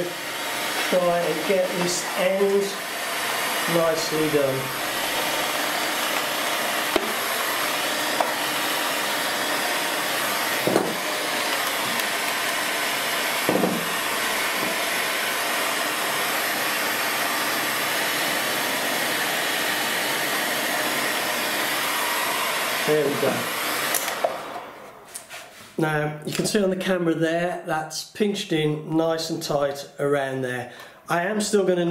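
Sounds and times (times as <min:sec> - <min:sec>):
hot air gun blowing: 0:00.0 - 0:25.6.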